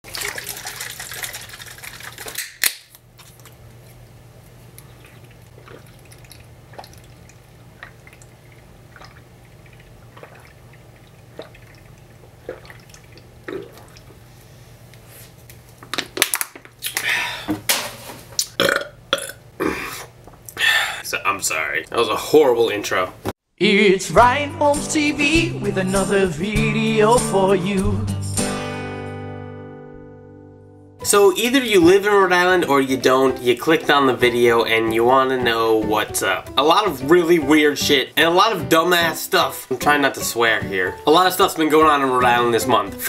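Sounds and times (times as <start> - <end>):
can opening crack: 2.2 - 3.0, 15.9 - 17.0
person gulping drink: 4.8 - 14.2, 18.4 - 20.6
loud burp: 18.6 - 19.8.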